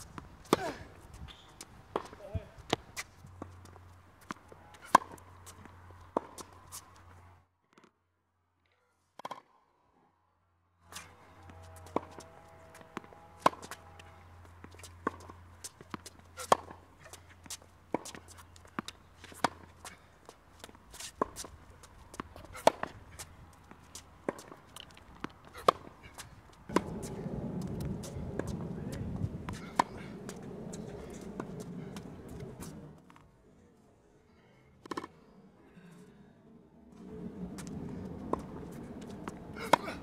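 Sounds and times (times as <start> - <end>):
tennis ball bounces: 0.0 - 7.1, 11.8 - 13.8, 14.5 - 20.0, 20.6 - 32.9, 37.5 - 40.0
tennis racket hitting ball: 0.1 - 0.8, 4.2 - 6.6, 11.8 - 13.8, 14.6 - 21.5, 22.1 - 32.9, 37.6 - 40.0
shoe scuffs on court: 10.8 - 33.2.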